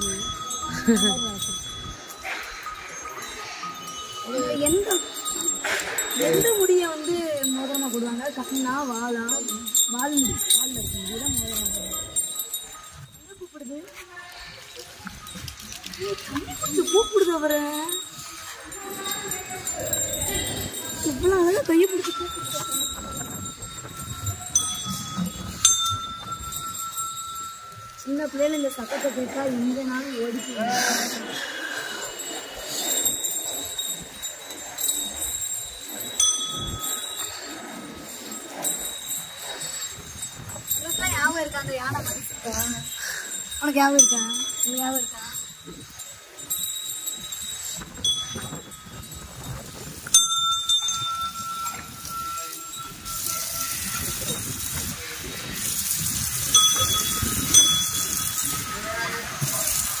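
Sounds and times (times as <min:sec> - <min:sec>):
elephant bells jingling: 0:00.0 - 1:00.0
sharp bell clang: 0:50.1 - 0:54.1, 0:56.5 - 0:59.6.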